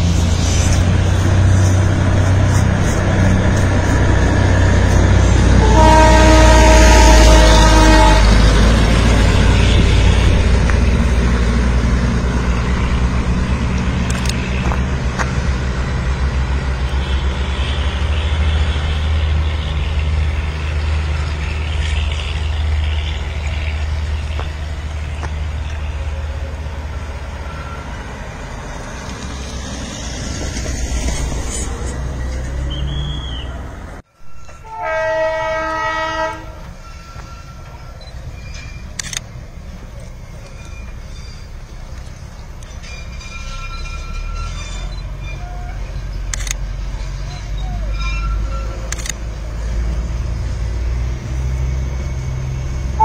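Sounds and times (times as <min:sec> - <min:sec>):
truck passing: 0:00.0 - 0:36.9, 0:44.0 - 0:53.0
train engine rumble: 0:00.0 - 0:53.0
horn sounding a chord: 0:05.6 - 0:08.4, 0:34.6 - 0:36.6.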